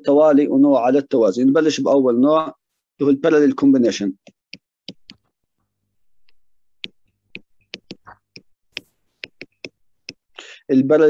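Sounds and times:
stylus pen tapping on tablet: 6.2 - 10.2.

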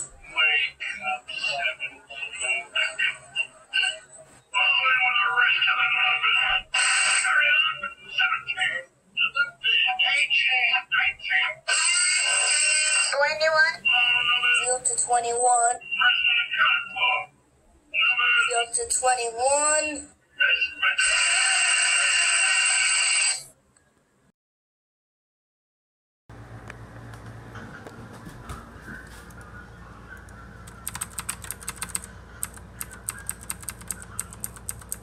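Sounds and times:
high-pitched voice-like sounds: 11.7 - 14.7, 19.6 - 23.5
keyboard key clicks: 30.7 - 35.0.

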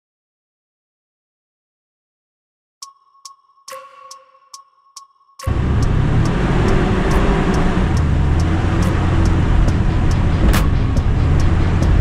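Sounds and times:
light ticking: 2.8 - 12.0
low engine hum: 5.5 - 12.0
sharp clack: 8.8 - 12.0.

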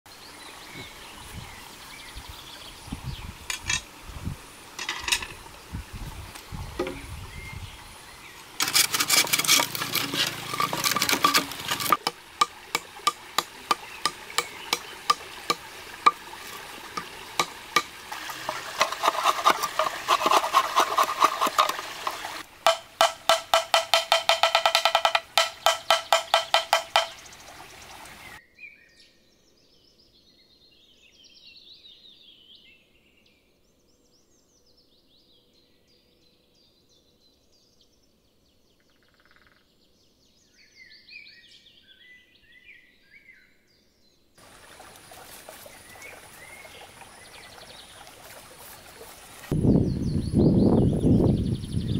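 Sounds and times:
bamboo sawing and knife knocks: 8.6 - 27.2
faint birdsong: 12.6 - 17.8, 24.9 - 51.9.

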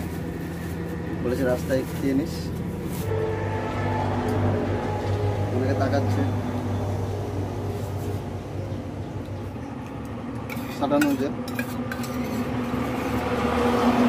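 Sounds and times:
metal spoon scraping in tin: 10.4 - 13.2.

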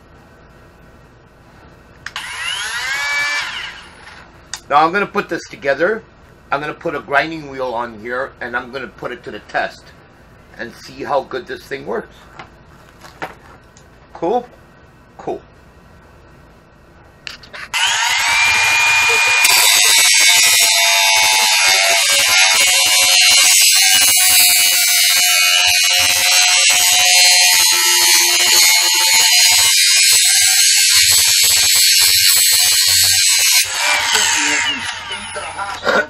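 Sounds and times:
angle grinder grinding metal: 2.1 - 4.2, 17.7 - 36.0.

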